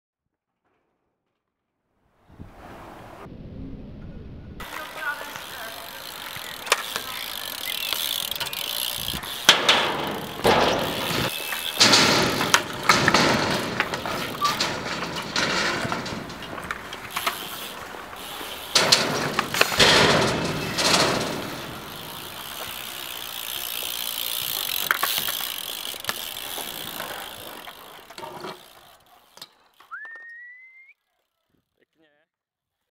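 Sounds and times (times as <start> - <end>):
bike landing knocks and rattles: 4.6 - 29.9
bike tyres rolling on concrete: 4.6 - 31.8.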